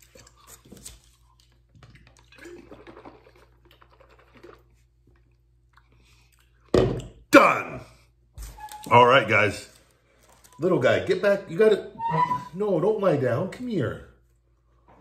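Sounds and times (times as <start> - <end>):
chewing: 0.0 - 6.7.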